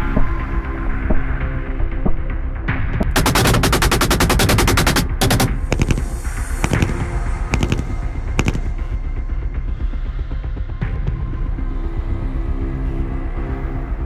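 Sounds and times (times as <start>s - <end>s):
automatic gunfire: 3.0s - 8.8s
separate gunshots: 3.0s - 8.8s.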